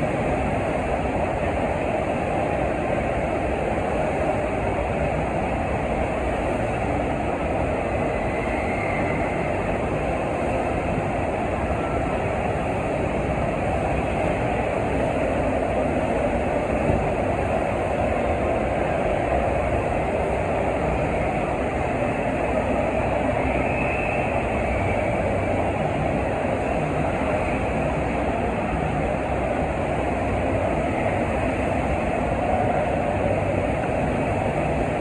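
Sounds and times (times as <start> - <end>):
water rushing up wave machine: 0.0 - 35.0.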